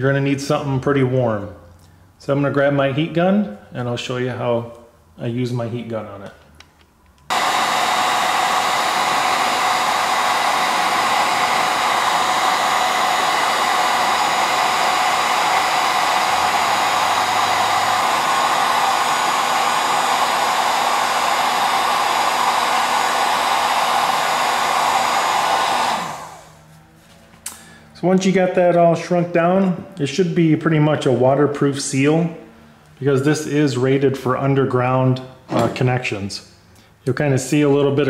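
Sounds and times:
heat gun blowing air: 7.3 - 26.7.

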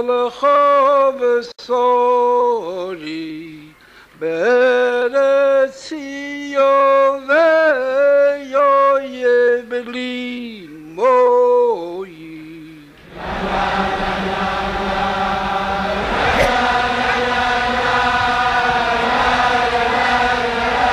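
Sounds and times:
man singing slow melody: 0.0 - 13.1.

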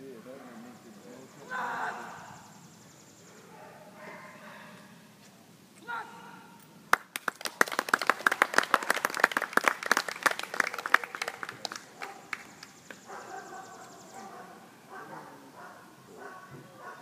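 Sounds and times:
crowd clapping: 6.9 - 13.0.

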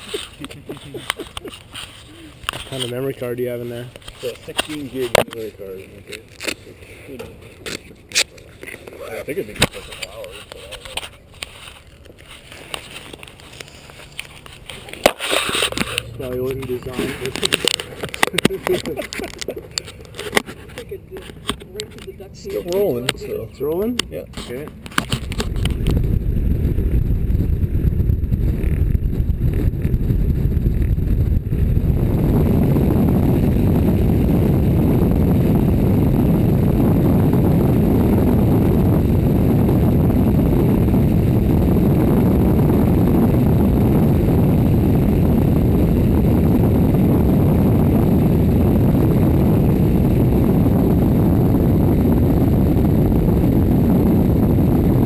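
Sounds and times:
propeller engine drone: 7.2 - 24.0, 24.8 - 55.0
wind rushing: 25.0 - 55.0.

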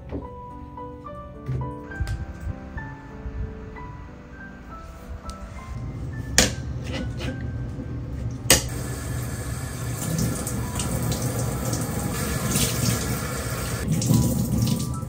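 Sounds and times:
cloth rinsed and squeezed: 8.7 - 15.0
tap running into a sink: 9.7 - 15.0.

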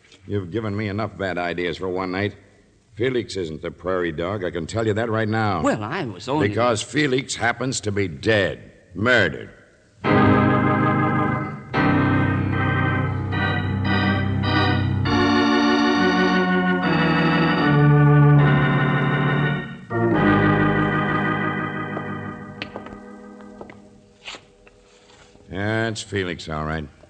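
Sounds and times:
dramatic organ chords: 10.0 - 24.2.

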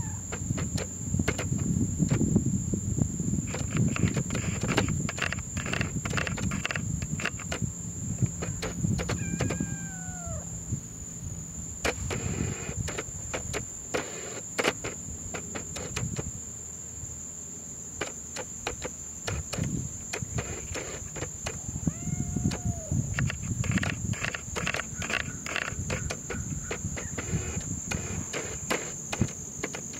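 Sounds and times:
high-pitched whine: 8.3 - 11.6
short falling squeak: 8.5 - 10.6.

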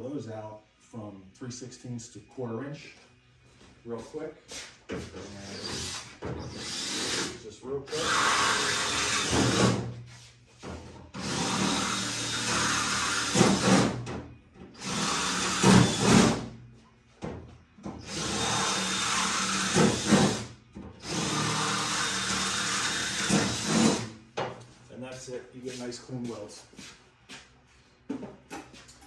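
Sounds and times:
power drill drilling metal: 5.6 - 9.8, 11.2 - 13.9, 14.8 - 16.4, 18.0 - 24.1.

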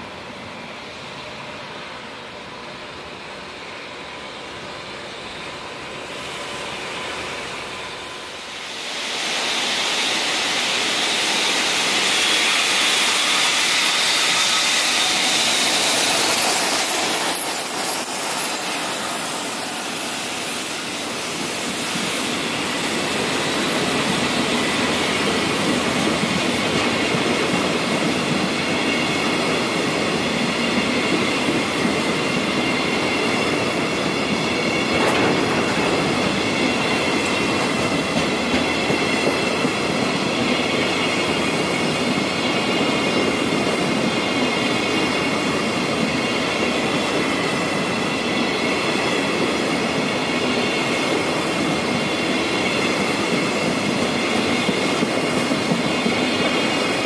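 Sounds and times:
train rumble: 0.0 - 57.0
train wheels clattering: 9.4 - 57.0.

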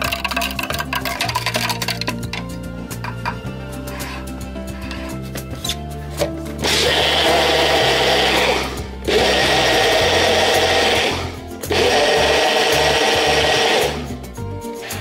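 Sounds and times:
blender whipping liquid: 6.6 - 14.1.

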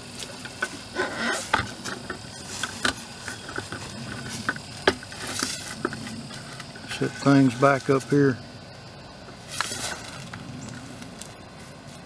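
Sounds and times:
rustling: 9.4 - 12.0.

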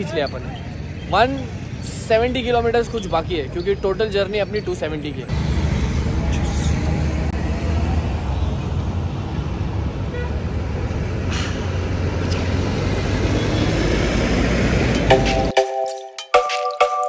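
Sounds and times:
music: 15.0 - 17.0.

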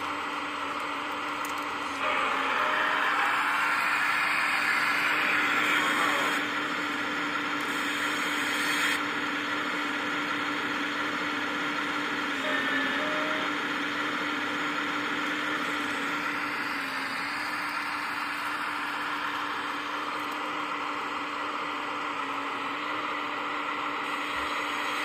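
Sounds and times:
hydraulic pump whining: 0.0 - 10.7, 11.4 - 25.0.

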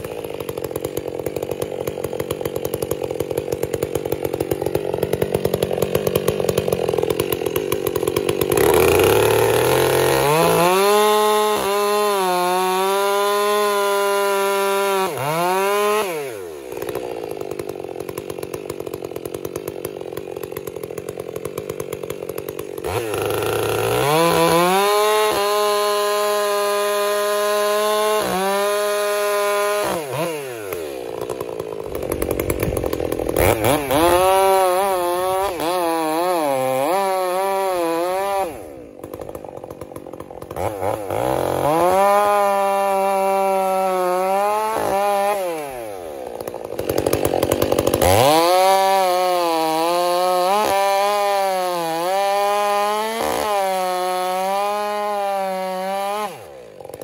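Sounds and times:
chainsaw cutting a log: 0.0 - 57.0.

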